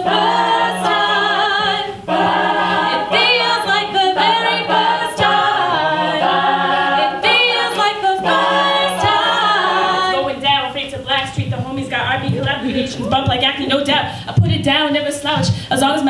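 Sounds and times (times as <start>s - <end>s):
lead voice singing: 0.0s - 10.5s
backing voices singing: 0.0s - 10.8s.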